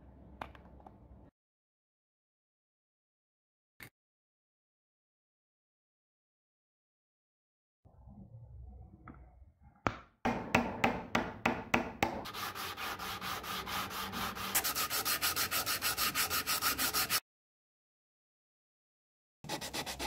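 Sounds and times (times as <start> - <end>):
hand sanding wood: 12.2 - 17.2, 19.5 - 20.0.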